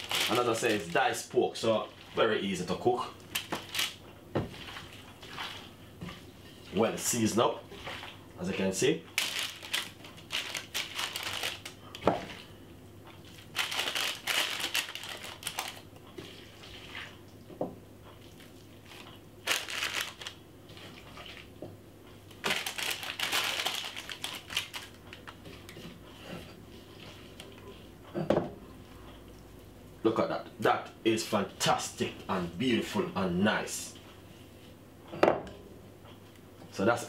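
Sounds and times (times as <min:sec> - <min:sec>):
baking paper and glove crinkling: 0:00.0 - 0:05.6, 0:06.5 - 0:12.5, 0:13.2 - 0:17.1, 0:18.4 - 0:21.6, 0:22.3 - 0:27.6
wet meat being handled: 0:00.0 - 0:05.8.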